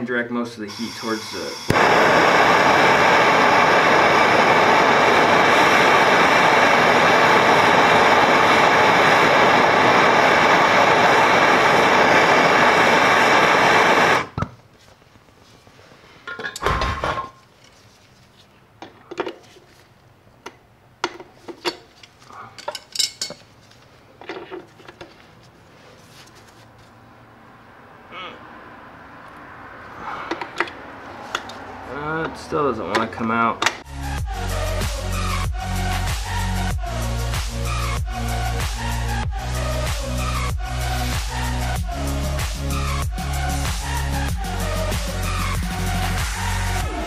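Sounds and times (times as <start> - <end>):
blowtorch hissing: 0.6 - 14.4, 37.5 - 47.0.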